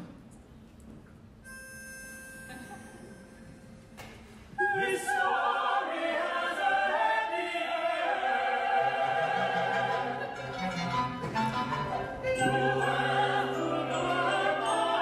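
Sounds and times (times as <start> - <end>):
opera singers: 4.6 - 15.0
orchestra playing: 9.6 - 15.0.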